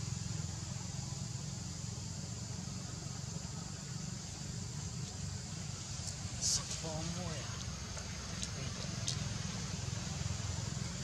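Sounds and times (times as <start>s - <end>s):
steady high hiss: 0.0s - 11.0s.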